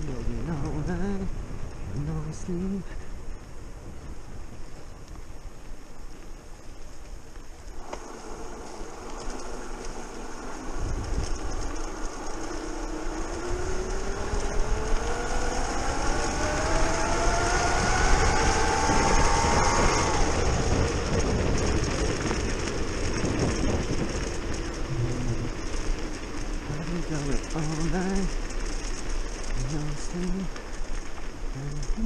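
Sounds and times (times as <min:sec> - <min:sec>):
wind: 0:00.0 - 0:32.0
tyre rumble on path: 0:03.0 - 0:32.0.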